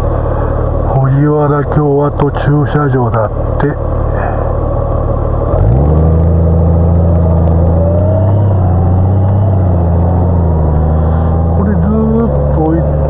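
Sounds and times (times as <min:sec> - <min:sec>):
motorcycle engine pulling away: 0:05.6 - 0:12.7.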